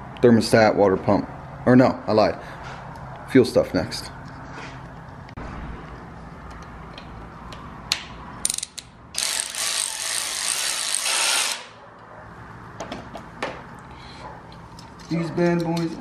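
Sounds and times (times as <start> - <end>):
ratchet wrench clicking: 8.4 - 11.7.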